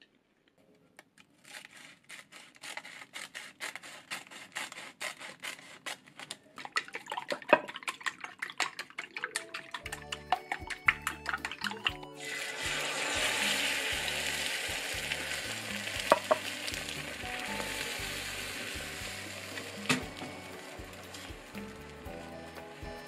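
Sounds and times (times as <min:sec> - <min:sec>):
chopsticks beating egg in glass bowl: 0:06.6 - 0:20.2
egg sizzling in hot pan: 0:07.6 - 0:23.0
chopsticks tapping: 0:08.7 - 0:12.1, 0:15.5 - 0:17.8.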